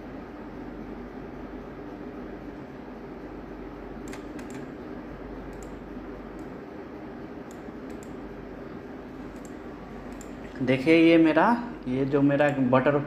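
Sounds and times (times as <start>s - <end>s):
low background hum: 0.0s - 13.0s
mouse and keyboard clicks: 4.0s - 4.7s, 7.5s - 8.2s, 9.3s - 10.4s.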